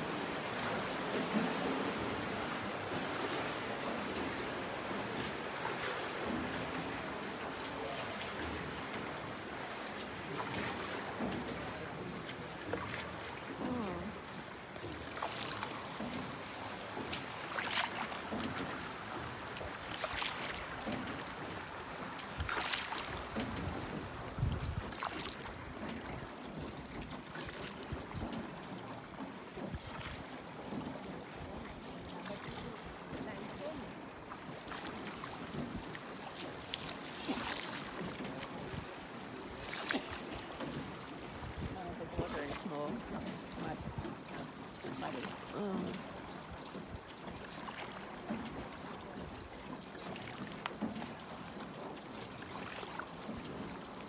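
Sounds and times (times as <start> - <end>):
oars splashing: 0.0 - 54.0
water washing: 0.0 - 54.0
wind rumble on microphone: 23.4 - 25.0, 41.4 - 42.5.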